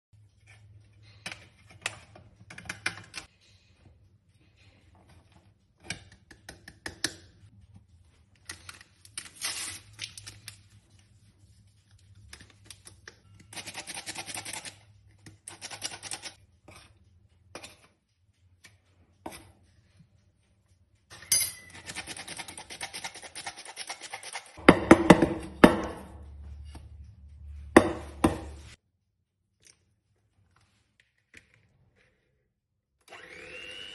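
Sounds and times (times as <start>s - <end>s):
spoon tapping and scraping bowl: 21.1s - 26.1s.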